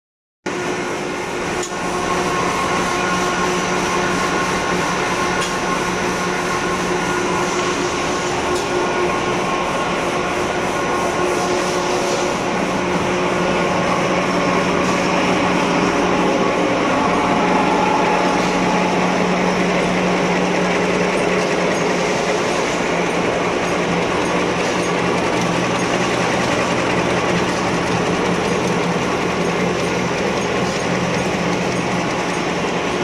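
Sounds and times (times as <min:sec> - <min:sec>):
paper machine running: 0:22.4 - 0:33.0.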